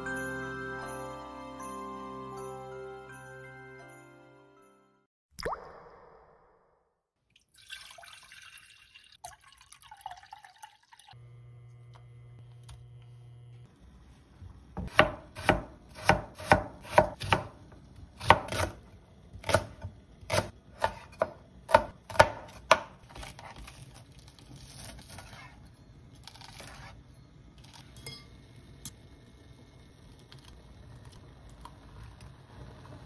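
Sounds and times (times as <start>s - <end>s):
knife chopping on plastic board: 14.8s - 17.6s, 18.2s - 18.8s, 19.4s - 23.8s
knife rasping through fish cake: 23.1s - 27.0s.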